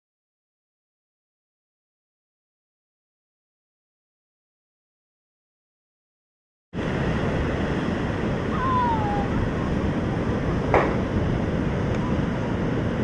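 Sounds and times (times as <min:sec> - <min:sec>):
ocean surf rushing: 0:06.8 - 0:13.0
wind noise on microphone: 0:06.8 - 0:13.0.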